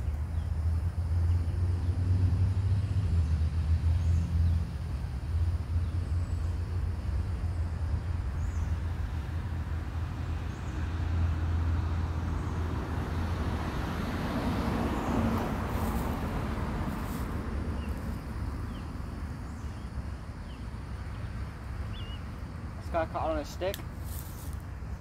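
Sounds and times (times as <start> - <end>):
low outdoor rumble: 0.0 - 25.0.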